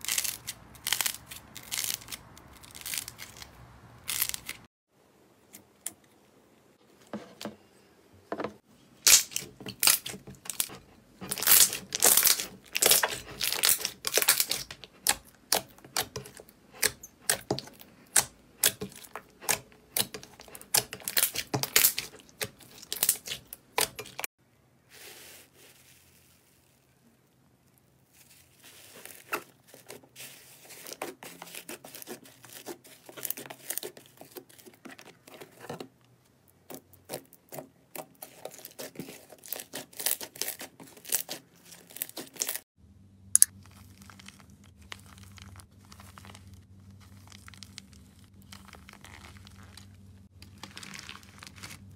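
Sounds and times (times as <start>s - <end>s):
slime squishing and crackling: 0.0s - 4.7s, 9.0s - 24.3s, 27.7s - 35.6s, 36.7s - 42.6s, 43.4s - 51.9s.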